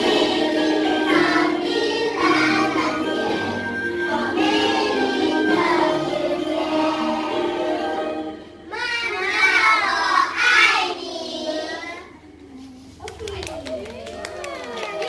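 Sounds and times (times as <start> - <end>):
children singing a song: 0.0 - 12.2.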